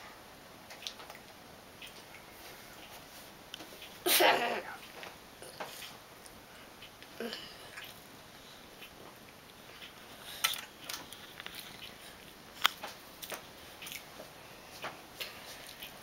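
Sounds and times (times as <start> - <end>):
child eating mouth sounds: 4.1 - 8.0.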